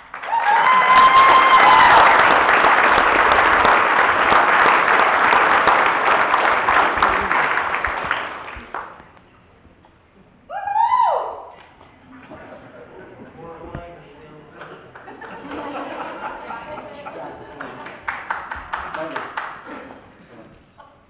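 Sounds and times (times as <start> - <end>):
audience applauding: 0.0 - 9.2, 17.2 - 19.9.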